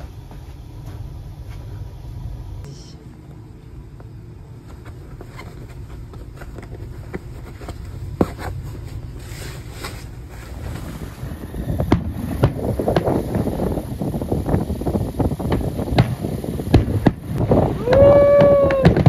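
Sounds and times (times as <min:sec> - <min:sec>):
fireworks crackling: 0:04.0 - 0:19.0
fireworks banging: 0:04.9 - 0:19.0
wind rumbling on microphone: 0:05.1 - 0:19.0.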